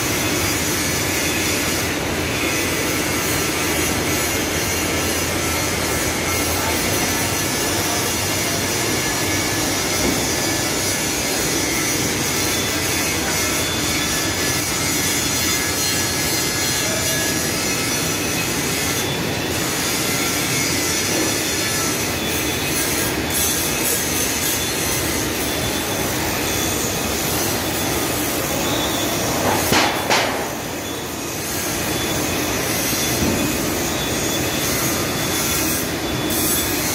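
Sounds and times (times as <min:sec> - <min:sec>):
workshop machinery whining: 0:00.0 - 0:36.9
sharp clattering knocks: 0:29.5 - 0:30.5.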